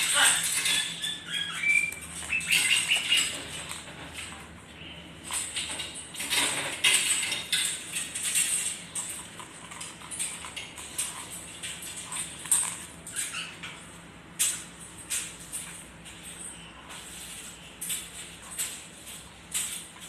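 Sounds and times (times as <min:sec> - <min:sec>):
parrot chirping: 0:00.0 - 0:03.6, 0:12.8 - 0:14.6
rustling and scratching on floor: 0:00.0 - 0:20.0.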